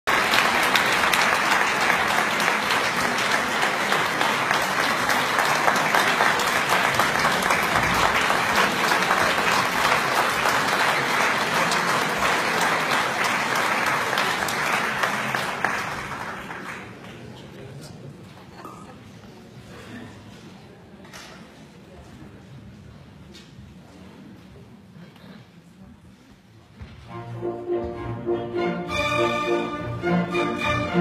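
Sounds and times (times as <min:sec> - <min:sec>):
audience applauding: 0:00.0 - 0:17.4.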